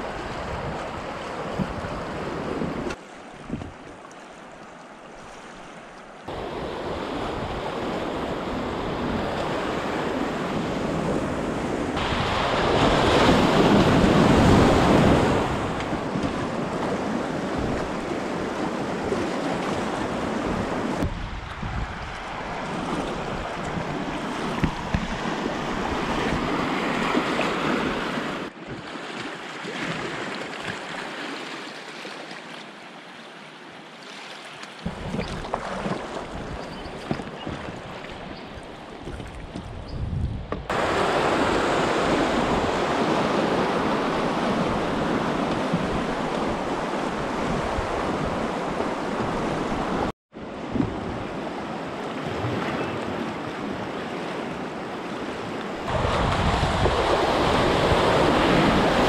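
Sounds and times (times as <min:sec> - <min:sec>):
river water rushing and splashing: 0:00.0 - 0:39.6, 0:40.6 - 0:59.0
wind buffeting microphone: 0:06.3 - 0:28.0, 0:39.0 - 0:51.4, 0:55.9 - 0:59.0.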